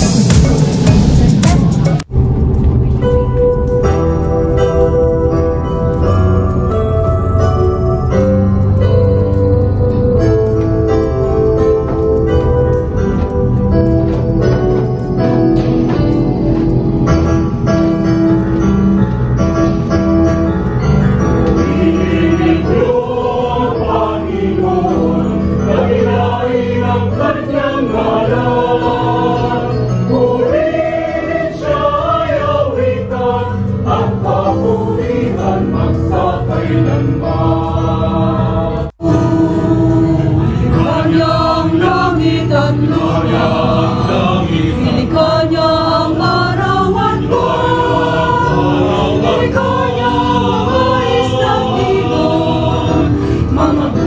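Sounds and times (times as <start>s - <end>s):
choir singing a hymn: 21.4s - 54.0s.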